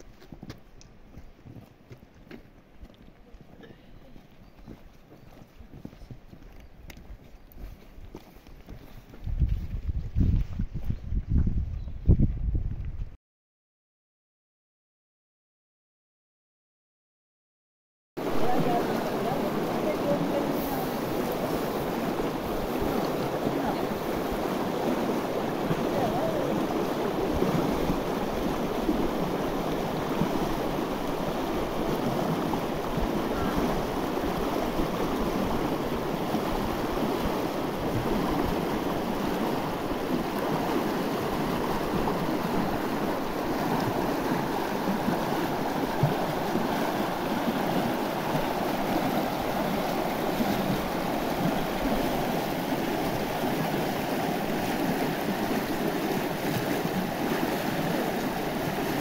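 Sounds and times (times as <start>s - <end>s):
river rushing over stones: 18.2s - 59.0s.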